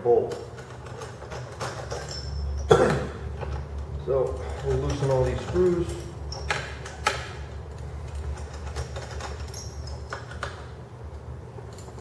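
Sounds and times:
steady low hum: 0.0s - 12.0s
allen wrench clicking on bolts: 0.3s - 2.7s, 3.4s - 10.7s.

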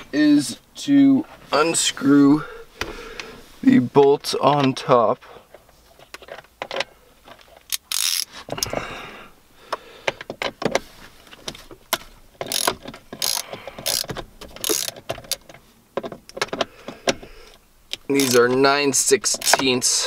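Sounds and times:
ratchet wrench clicking: 7.7s - 8.3s, 12.4s - 15.4s, 17.9s - 18.5s, 19.2s - 20.0s.

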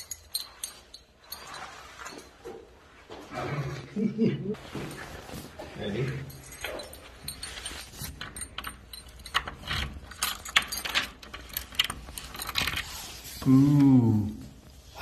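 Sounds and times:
keys jangling: 0.0s - 2.4s, 4.8s - 13.0s.

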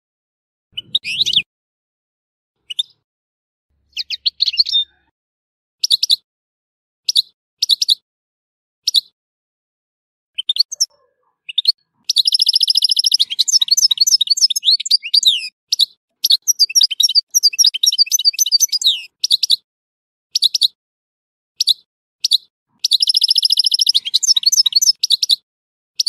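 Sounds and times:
goldfinch singing: 0.8s - 1.5s, 2.7s - 3.0s, 3.9s - 5.1s, 10.4s - 19.6s, 21.6s - 25.4s.

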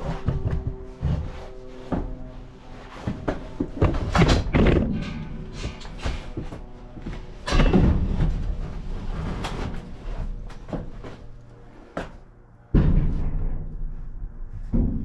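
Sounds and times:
wooden boards knocking and scraping: 2.9s - 5.0s.

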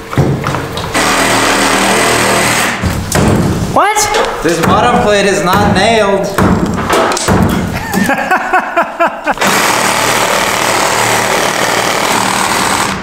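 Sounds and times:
reciprocating saw cutting wood: 9.4s - 13.0s.

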